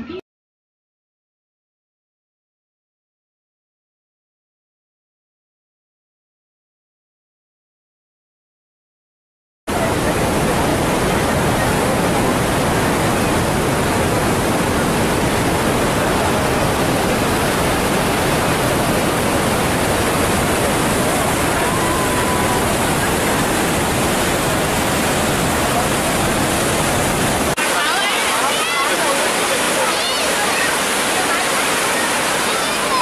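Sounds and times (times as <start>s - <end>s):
waterfall rushing over rocks: 9.7s - 33.0s.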